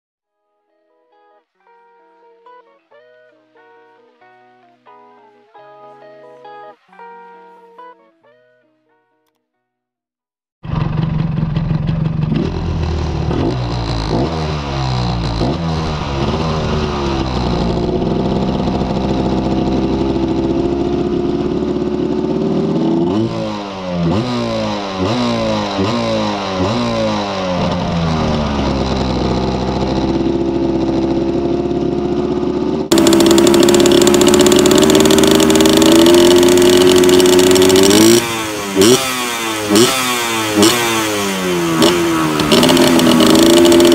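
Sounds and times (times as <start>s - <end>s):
two-stroke engine revving: 10.6s - 43.9s.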